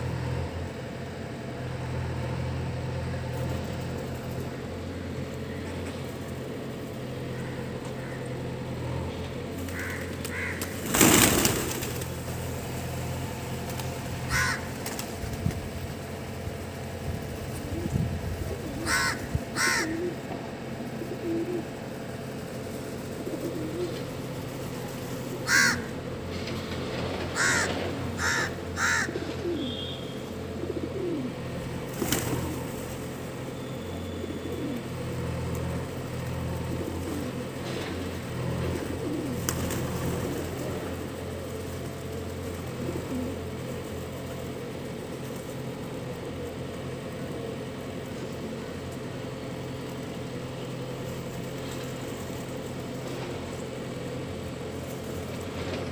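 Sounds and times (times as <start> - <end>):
crow cawing: 7.3 - 8.4, 9.6 - 10.9, 14.2 - 14.8, 18.8 - 20.2, 25.4 - 26.0, 27.3 - 30.0
pigeons cooing: 9.6 - 15.2, 16.7 - 50.2.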